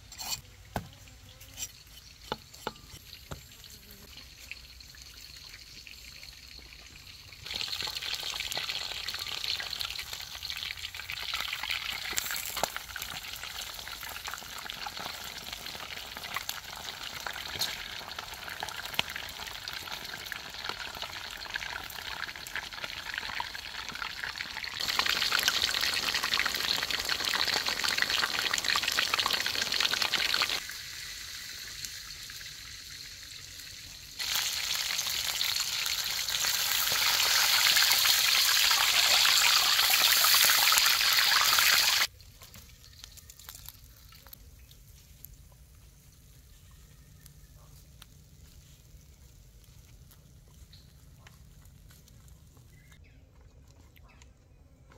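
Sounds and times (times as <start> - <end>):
food sizzling: 1.4 - 42.1.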